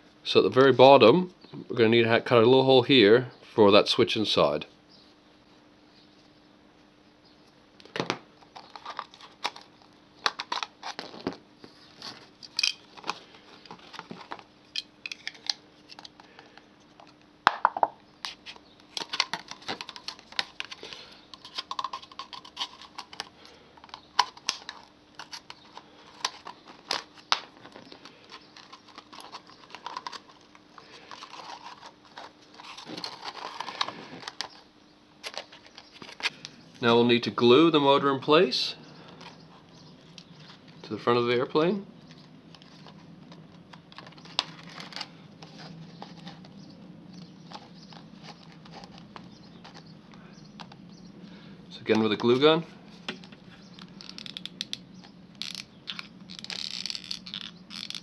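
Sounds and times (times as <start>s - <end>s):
plastic bottle crinkling: 8.5s - 14.5s, 18.9s - 34.6s, 55.4s - 58.0s.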